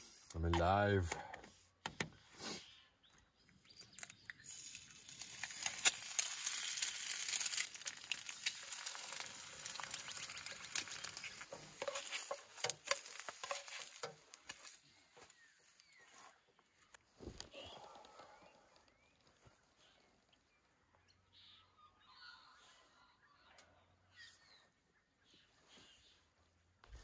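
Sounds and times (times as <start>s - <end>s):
eggs sizzling in a pan: 4.3s - 14.8s.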